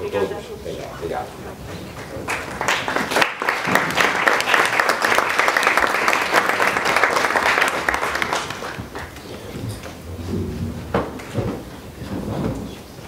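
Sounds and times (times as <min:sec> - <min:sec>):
audience clapping: 0:01.4 - 0:10.0.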